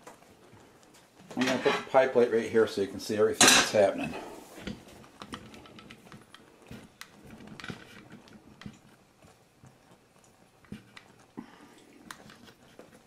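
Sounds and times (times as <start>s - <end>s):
light clicks and taps in kitchen: 4.6s - 13.0s.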